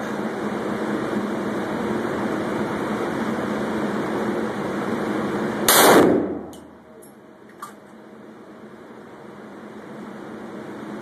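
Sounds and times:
pistol shot: 5.7 - 6.6.

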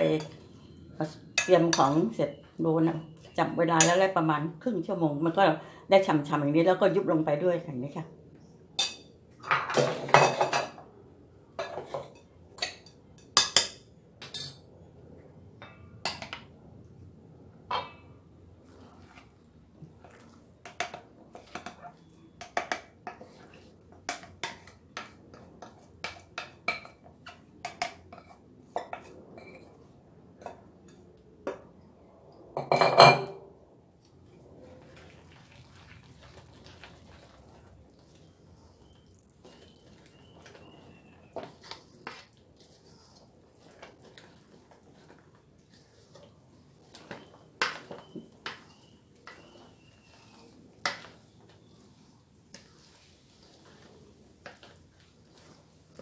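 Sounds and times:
metal spoon clinking in bowl: 12.2 - 14.6.

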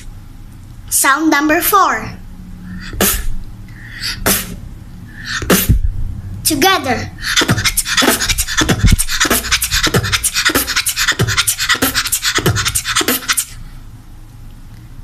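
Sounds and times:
girl beatboxing: 2.7 - 13.7.

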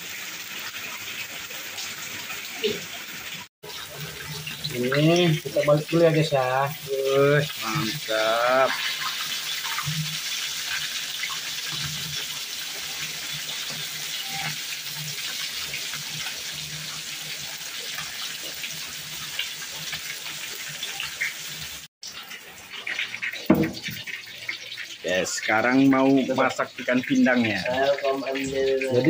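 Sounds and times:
fish sizzling in hot oil: 0.0 - 29.0
knocks: 23.5 - 23.9.

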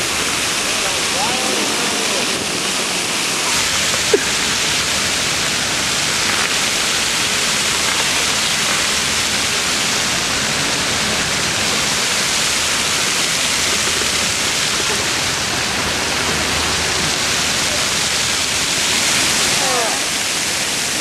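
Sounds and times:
fountain water splashing: 0.0 - 21.0.

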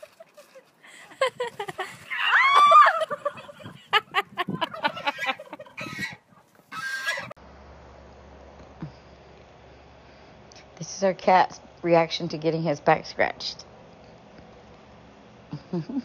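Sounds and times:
poultry clucking: 4.0 - 7.4.

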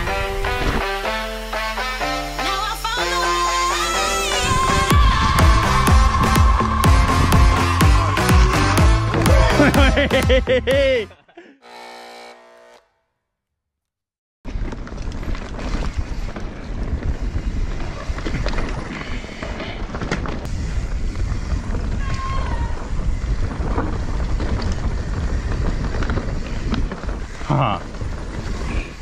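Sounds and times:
music: 0.0 - 11.1
bike clicks and rattles: 14.5 - 22.0, 22.8 - 29.0
bike tyres rumbling on dirt: 14.5 - 29.0
wind buffeting microphone: 14.5 - 29.0.

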